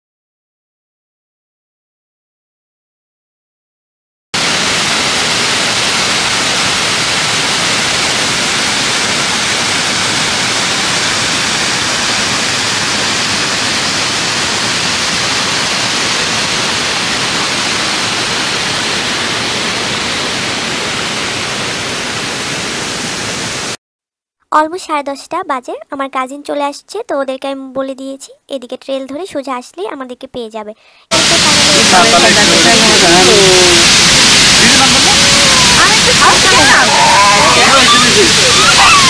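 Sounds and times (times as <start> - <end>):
waterfall rushing: 4.4 - 23.8, 31.1 - 39.0.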